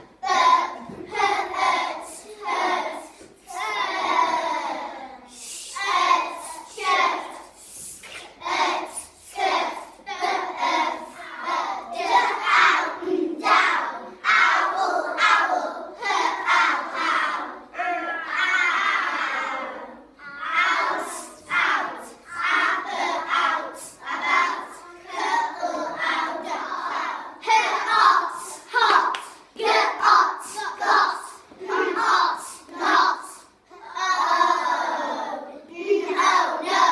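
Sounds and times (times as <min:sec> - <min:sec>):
children chanting together: 0:00.0 - 0:36.9.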